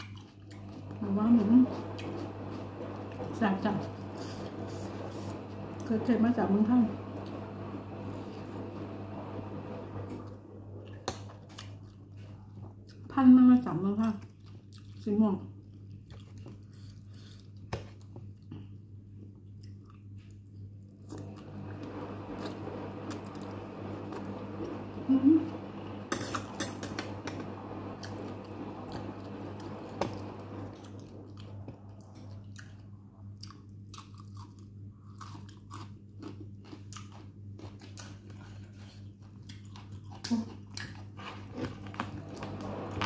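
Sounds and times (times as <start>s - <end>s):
person chewing and crunching food: 0.0s - 0.9s, 10.9s - 13.1s, 14.0s - 21.2s, 30.9s - 42.2s
steady low hum: 0.0s - 43.0s.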